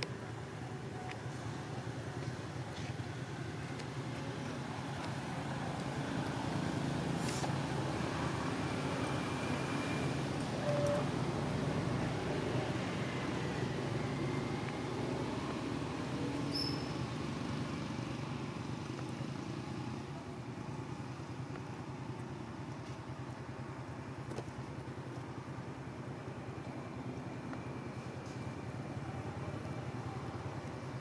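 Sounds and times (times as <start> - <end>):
low outdoor background rumble: 0.0 - 31.0
faint high chirp: 16.4 - 17.1.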